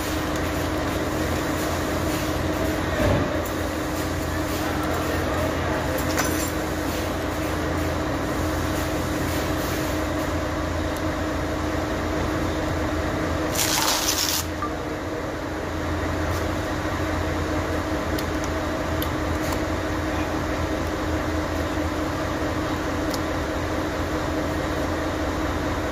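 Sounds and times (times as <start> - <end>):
machinery humming: 0.0 - 25.9.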